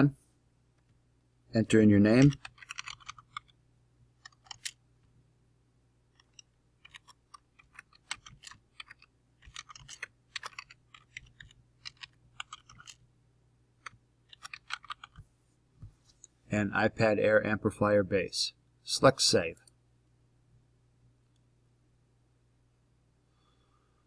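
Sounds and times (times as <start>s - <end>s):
typing on computer keyboard: 2.1s - 3.6s, 4.2s - 4.8s, 6.2s - 13.0s, 13.8s - 15.2s.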